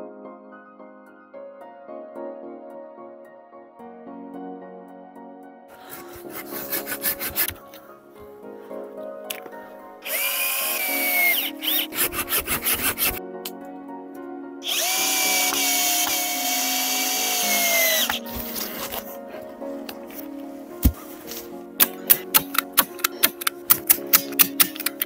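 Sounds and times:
background music: 0.0s - 25.0s
cordless drill whining: 10.0s - 13.2s, 14.6s - 18.2s.

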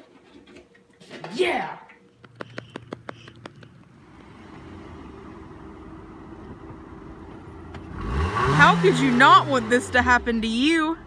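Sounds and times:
sharp clicks: 2.2s - 3.9s
car approaching on asphalt: 2.3s - 11.0s.

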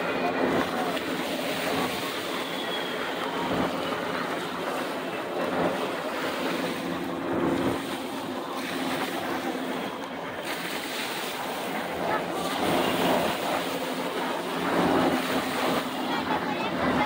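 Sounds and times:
helicopter hovering drone: 0.0s - 17.0s
shallow surf washing: 0.0s - 17.0s.

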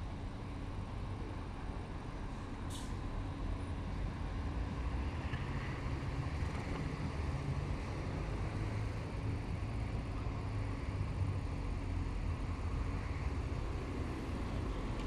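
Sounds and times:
rumble of nearby cars: 0.0s - 15.0s.

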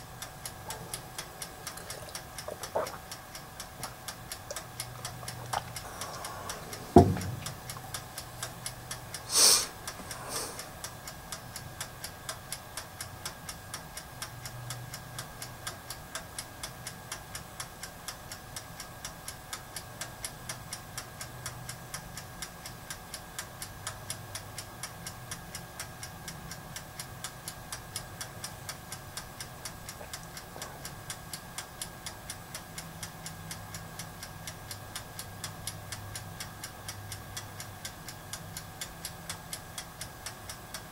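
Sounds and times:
mechanical timer ticking: 0.0s - 40.9s
sharp knock: 7.0s - 7.4s
short hiss: 9.2s - 10.7s.

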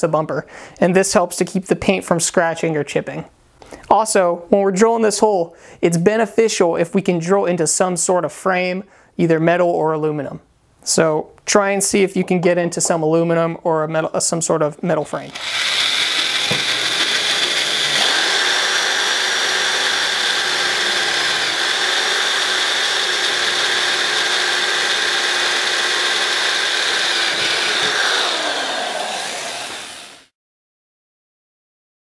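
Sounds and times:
power drill whining: 15.2s - 30.3s.

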